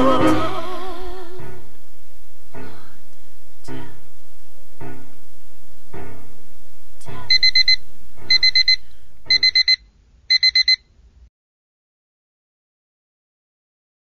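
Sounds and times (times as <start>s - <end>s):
alarm clock beeping: 7.2s - 10.8s.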